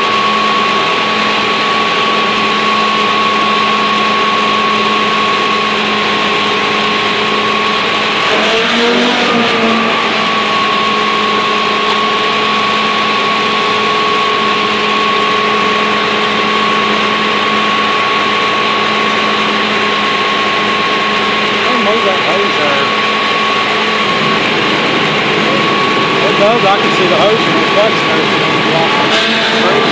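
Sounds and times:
diesel engine drone: 0.0 - 29.9
pump high whine: 0.0 - 29.9.

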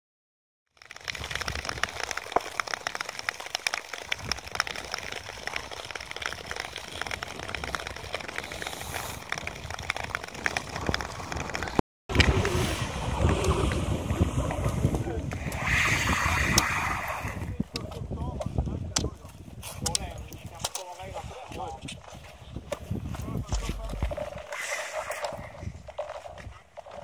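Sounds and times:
ice ticks and crackles: 0.7 - 12.3, 16.5 - 27.0
wind noise on microphone: 0.9 - 2.2, 4.0 - 27.0
ice skates scraping on ice: 4.8 - 11.8, 23.4 - 27.0.

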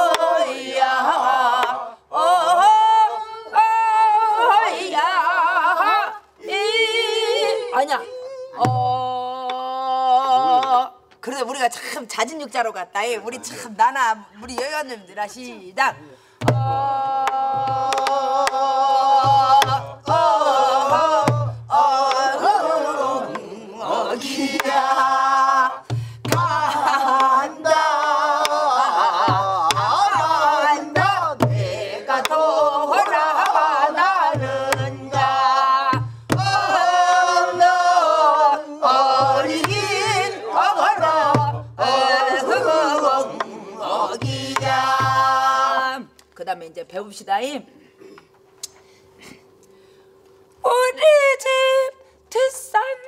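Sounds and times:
woman singing with vibrato: 0.0 - 11.1, 16.6 - 46.1, 50.6 - 53.0
barrel drum thumps and clicks: 16.4 - 18.6.

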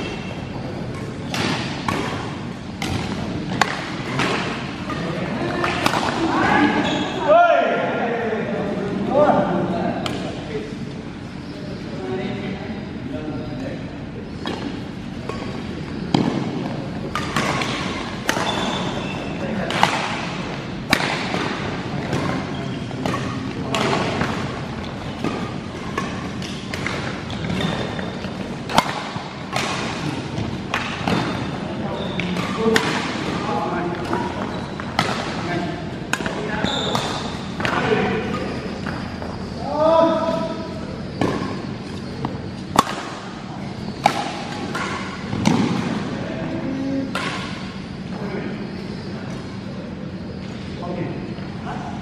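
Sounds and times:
rackets smacking shuttlecock: 0.9 - 6.3, 14.4 - 39.2, 41.1 - 46.0, 47.1 - 47.8
badminton racket hitting shuttlecock: 28.7 - 30.0.

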